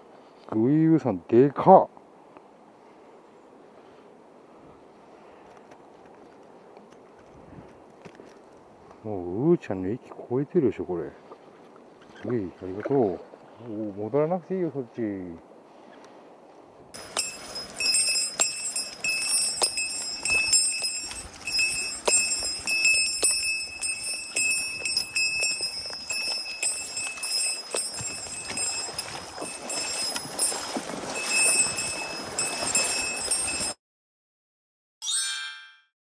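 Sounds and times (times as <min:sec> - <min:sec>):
small bell jingling: 0:17.0 - 0:33.8.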